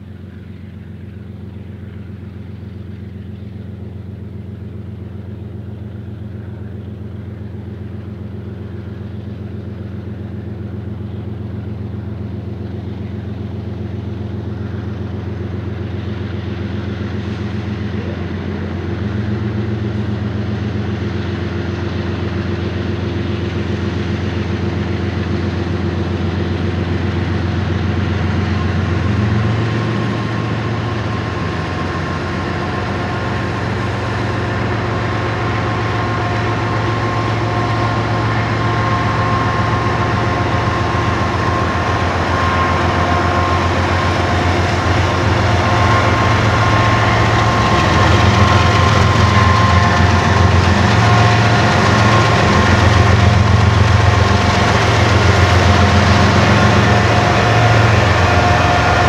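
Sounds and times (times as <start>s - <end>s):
diesel locomotive engine running: 0.0s - 59.0s.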